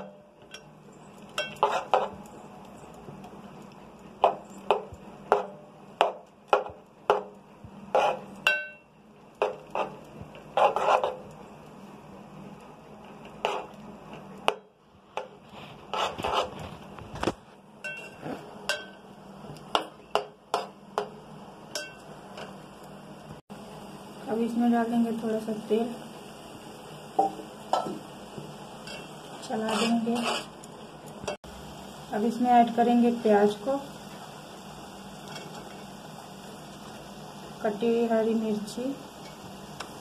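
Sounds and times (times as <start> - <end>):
spatula scraping metal pot: 1.3 - 2.2, 7.9 - 8.6, 9.4 - 11.4, 13.3 - 13.8, 15.2 - 17.0, 28.8 - 30.6.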